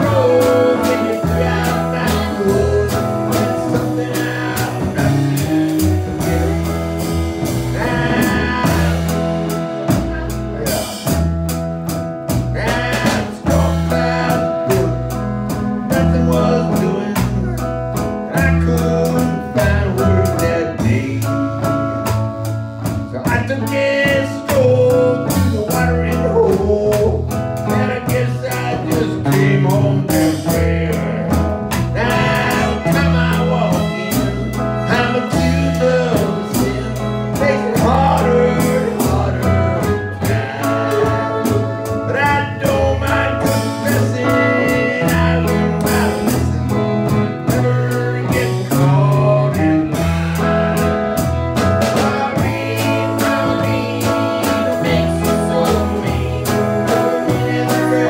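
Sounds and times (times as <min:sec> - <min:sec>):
person singing: 0:00.0 - 0:11.3, 0:12.3 - 0:22.1, 0:23.1 - 0:58.0
acoustic guitar: 0:00.0 - 0:58.0
drum kit: 0:00.0 - 0:58.0
upright double bass: 0:00.0 - 0:58.0
fiddle: 0:31.8 - 0:58.0.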